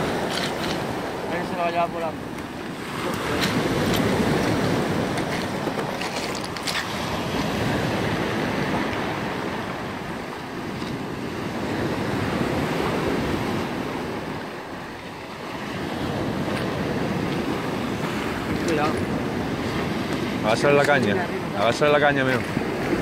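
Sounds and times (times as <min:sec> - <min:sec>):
wind buffeting microphone: 0:00.0 - 0:23.0
surf breaking on pebbles: 0:02.8 - 0:09.4.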